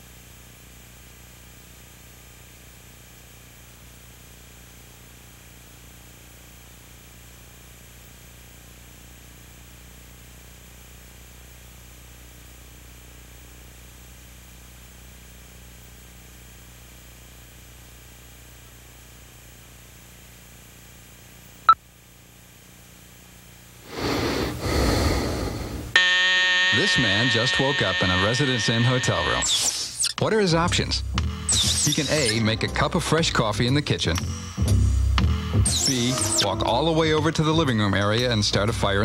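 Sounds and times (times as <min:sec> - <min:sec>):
man snoring: 0:23.9 - 0:26.0
videotape hum and hiss: 0:26.6 - 0:39.0.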